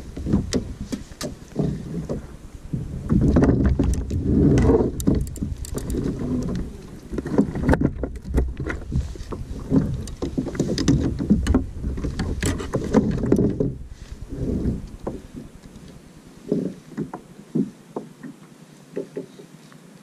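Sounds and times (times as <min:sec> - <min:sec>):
water lapping against hull: 0:00.0 - 0:19.8
fishing tackle knocks and clicks: 0:03.1 - 0:13.7.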